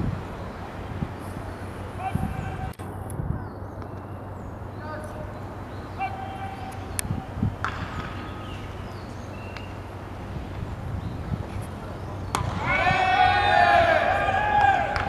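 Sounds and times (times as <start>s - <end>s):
distant shouted calls: 1.5s - 2.8s, 3.4s - 10.2s, 11.8s - 15.0s.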